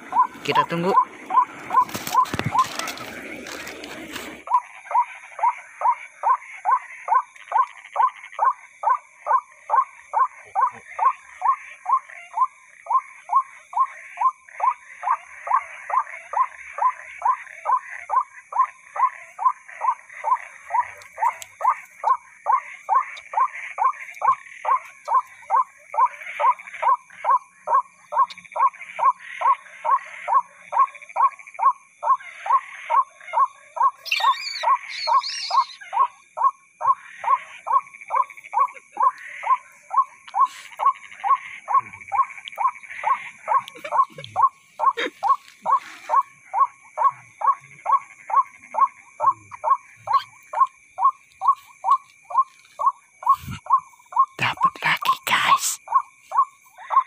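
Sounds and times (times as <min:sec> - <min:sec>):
harsh bird call through loudspeaker: 0:00.2 - 0:01.1, 0:34.0 - 0:35.8.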